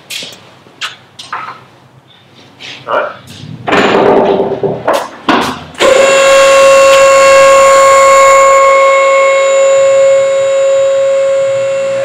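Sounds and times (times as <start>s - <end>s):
hydraulic pump whining: 5.8s - 12.0s.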